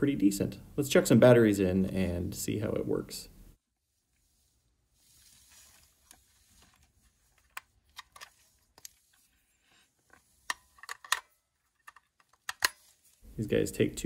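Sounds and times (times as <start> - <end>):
plastic and metal clicks: 10.4 - 12.9.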